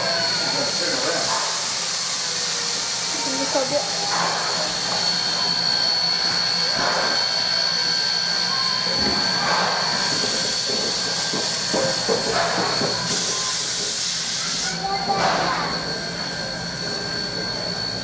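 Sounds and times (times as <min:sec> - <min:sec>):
steam locomotive hissing: 0:00.0 - 0:18.0
thin high whistle-like tone: 0:03.2 - 0:11.2, 0:12.6 - 0:18.0.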